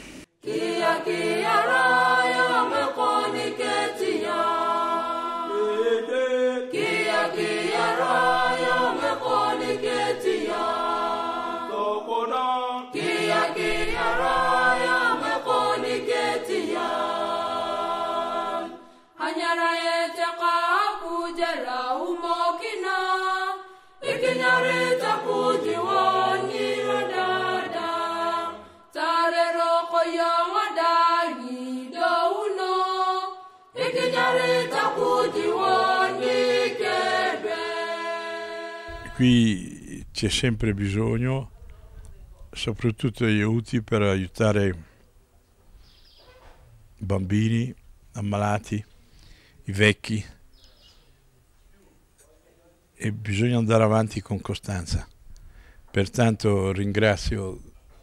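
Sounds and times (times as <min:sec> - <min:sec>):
choir singing a chant: 0:00.4 - 0:39.6.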